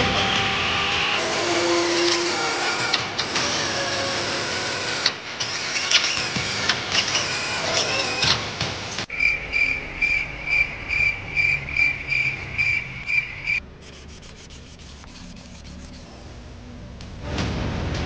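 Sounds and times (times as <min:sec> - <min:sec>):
faint light scratching: 0:13.7 - 0:16.2
sandpaper rasping on metal: 0:13.8 - 0:16.1.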